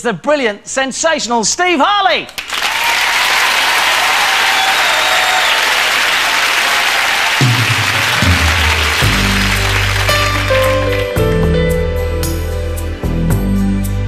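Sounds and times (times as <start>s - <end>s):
studio audience applauding: 2.3s - 11.5s
band playing low notes: 7.4s - 14.0s.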